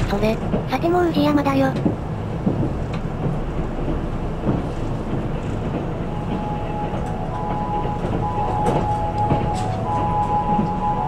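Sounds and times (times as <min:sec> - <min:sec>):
train wheels rumbling on rail: 0:00.0 - 0:11.0
high tones: 0:06.1 - 0:11.0.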